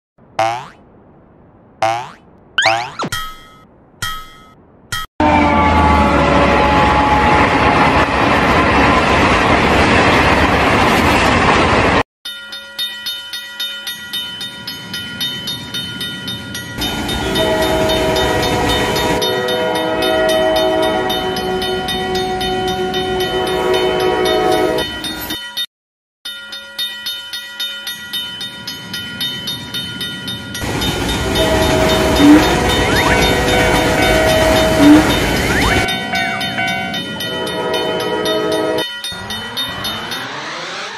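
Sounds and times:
rhythmic train clatter: 0:07.1 - 0:25.5, 0:26.8 - 0:40.8
cartoon train running past: 0:14.7 - 0:25.4, 0:28.7 - 0:40.9.

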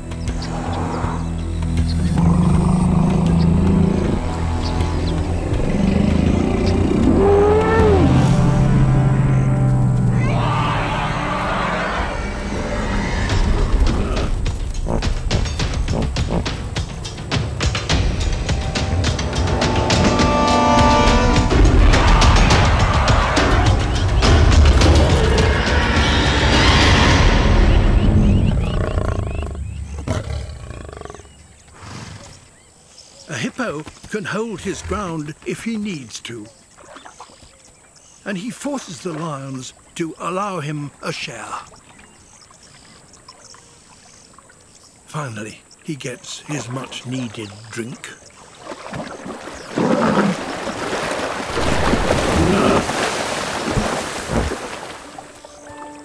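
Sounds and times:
wild animal roaring: 0:02.0 - 0:04.6, 0:05.3 - 0:09.5, 0:28.5 - 0:32.1
water sloshing and splashing: 0:36.5 - 0:38.1, 0:45.7 - 0:56.0.

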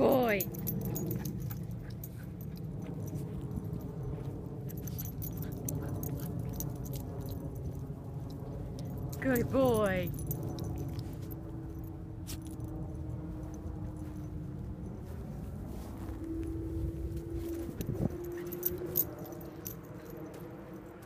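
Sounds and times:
dog tags jingling: 0:00.0 - 0:13.1, 0:17.5 - 0:21.0
motor hum: 0:00.0 - 0:21.0.

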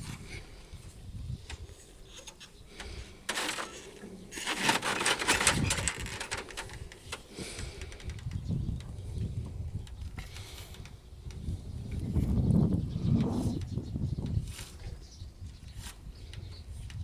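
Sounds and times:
harness straps rubbing and rustling: 0:03.3 - 0:08.2, 0:14.3 - 0:16.0.

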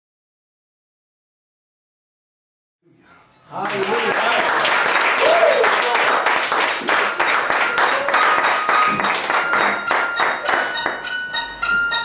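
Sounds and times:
audience applauding: 0:03.5 - 0:11.0
song backing music: 0:07.0 - 0:12.0.

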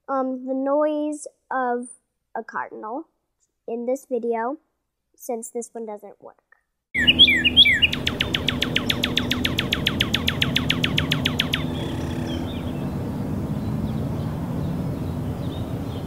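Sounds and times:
faint bird notes: 0:07.0 - 0:16.0.

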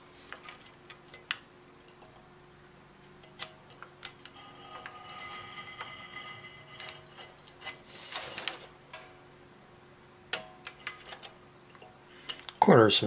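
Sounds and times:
scratchy plastic film rustle: 0:06.9 - 0:08.7.

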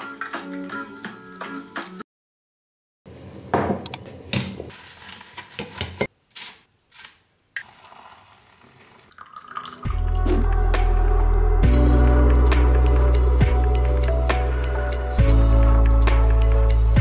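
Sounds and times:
water pouring from kettle: 0:07.6 - 0:10.1.

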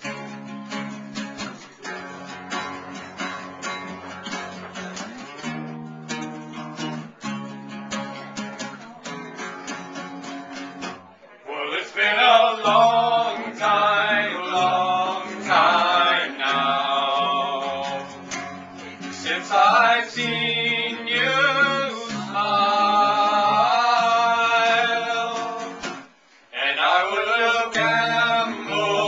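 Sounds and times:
strummed guitar: 0:00.0 - 0:29.0
man singing: 0:11.5 - 0:29.0.

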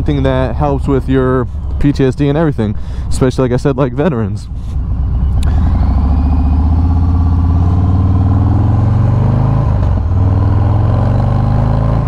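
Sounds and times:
motorcycle engine accelerating: 0:04.6 - 0:12.0.

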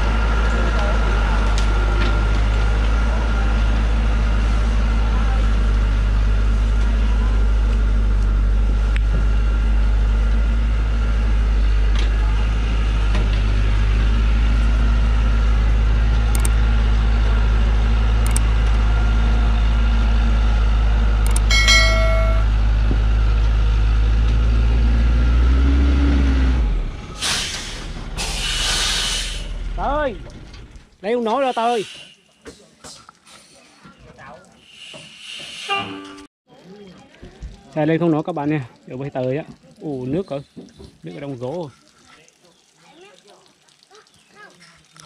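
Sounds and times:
truck engine droning under load: 0:00.0 - 0:30.8
brief high tone: 0:21.5 - 0:22.5.

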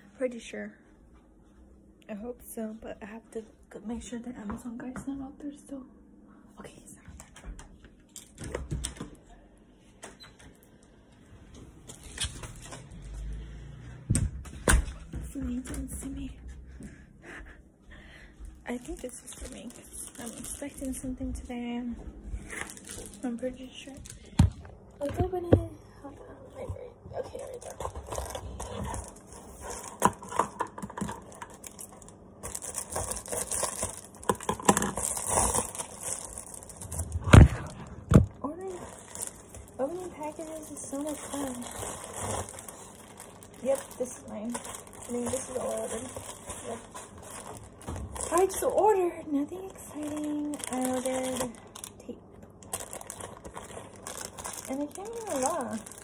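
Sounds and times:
plastic mailer tearing and crinkling: 0:18.7 - 0:21.1, 0:22.5 - 0:24.2, 0:27.3 - 0:49.0, 0:49.6 - 0:56.0.

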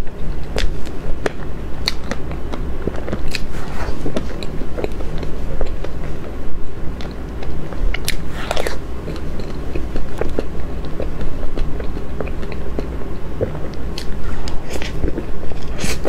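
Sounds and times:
chewing and wet mouth sounds: 0:00.0 - 0:16.0
low steady hum: 0:00.0 - 0:16.0.

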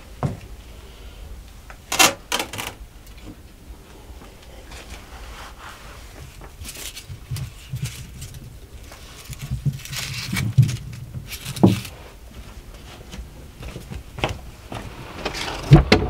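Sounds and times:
onions rustling in plastic crate: 0:04.4 - 0:16.0.

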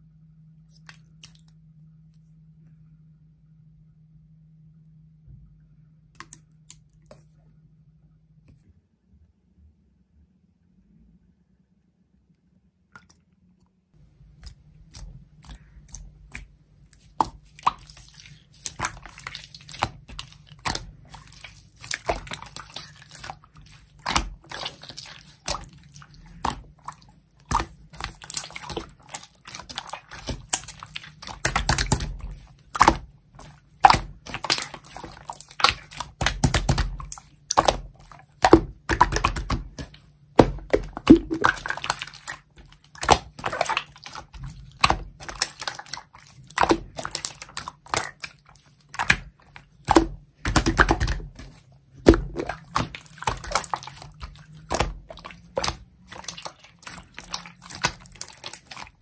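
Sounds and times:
slime squishing: 0:00.7 - 0:01.6, 0:06.2 - 0:07.4, 0:14.0 - 0:59.0
slime crackly popping: 0:17.0 - 0:48.3.

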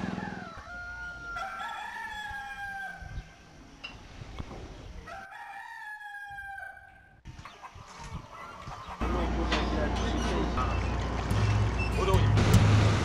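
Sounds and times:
rooster crowing: 0:00.0 - 0:03.2, 0:05.0 - 0:07.0.

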